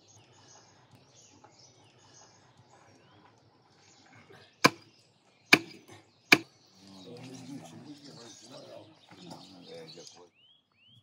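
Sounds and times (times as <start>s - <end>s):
faint birds chirping: 0.0s - 11.0s
blade chopping into bone: 4.7s - 4.9s, 5.6s - 6.5s.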